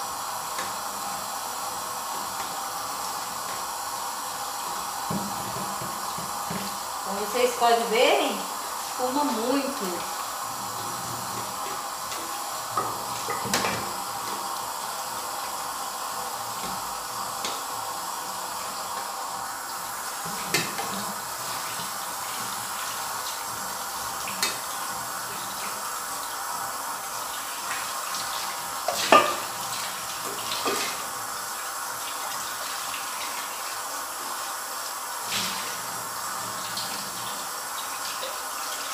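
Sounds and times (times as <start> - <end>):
tap water running into sink: 0.0 - 38.9
pot clanking against sink: 12.1 - 14.4, 28.9 - 29.6.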